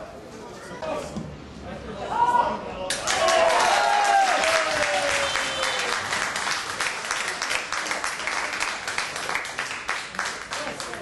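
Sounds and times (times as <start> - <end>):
spectators clapping: 2.9 - 11.0.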